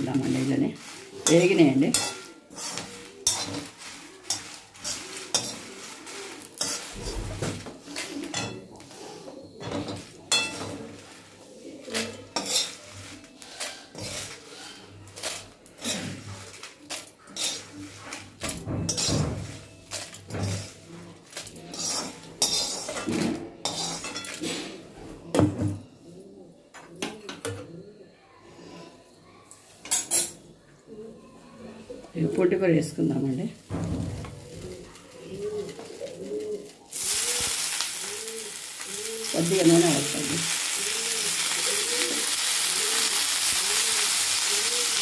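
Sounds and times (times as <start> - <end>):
metal ladle scraping a wok: 0.2 - 8.9, 9.8 - 24.7.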